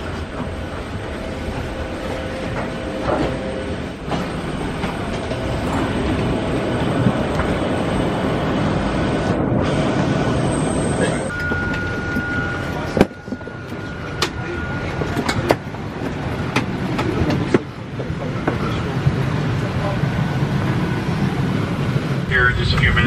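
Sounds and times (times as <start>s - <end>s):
suitcase wheels rumbling: 0.0s - 19.2s.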